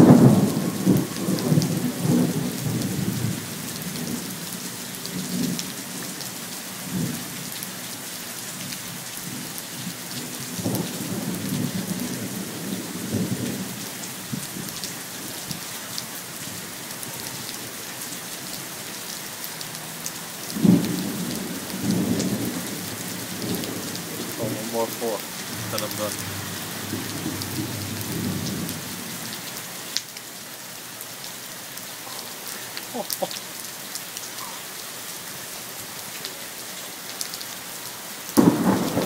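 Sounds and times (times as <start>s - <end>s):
thunder rumbling: 0.0s - 3.4s, 20.6s - 29.4s, 38.4s - 39.0s
heavy rain falling: 0.0s - 39.0s.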